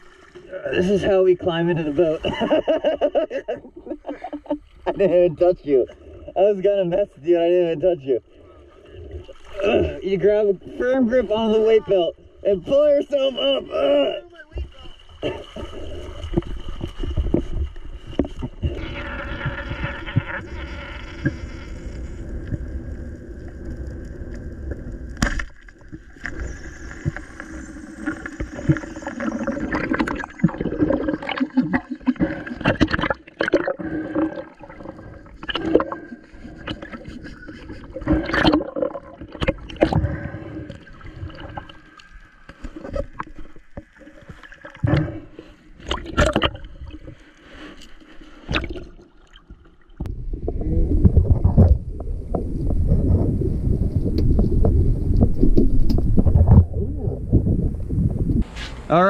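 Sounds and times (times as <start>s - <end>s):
underwater gurgling: 0.0s - 58.4s
underwater clicks and knocks: 16.3s - 18.8s, 29.7s - 41.8s, 45.8s - 47.2s, 54.1s - 56.8s.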